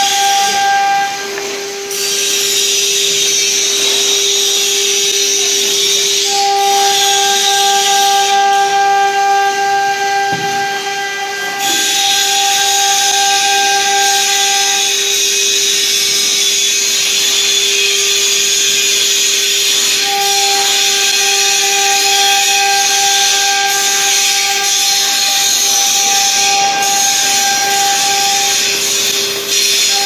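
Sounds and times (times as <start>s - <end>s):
engraving machine hiss and whine: 0.0s - 30.0s.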